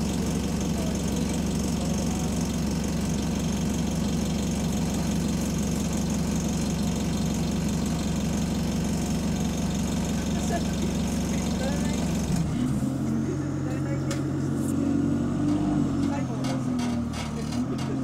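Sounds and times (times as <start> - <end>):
bus diesel engine idling: 0.0 - 18.0
bus parts rattling: 15.4 - 18.0.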